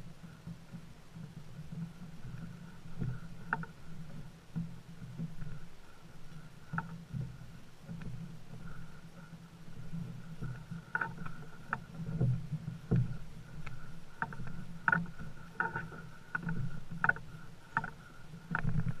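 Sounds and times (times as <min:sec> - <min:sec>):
canoe knocking and creaking: 0:00.0 - 0:19.0
faint steady hum: 0:00.0 - 0:19.0.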